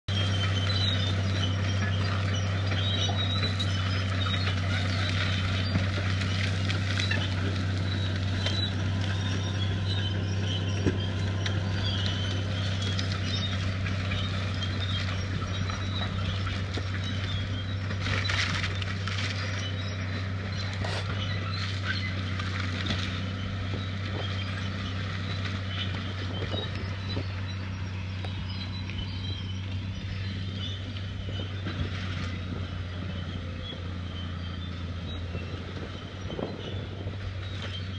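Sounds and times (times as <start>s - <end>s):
bulldozer diesel engine under load: 0.0s - 37.9s
brush and timber snapping: 0.2s - 30.0s.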